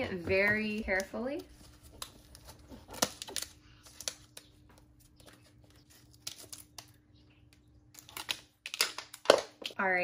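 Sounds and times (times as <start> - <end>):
plastic cup clicking and rustling: 8.0 - 9.8.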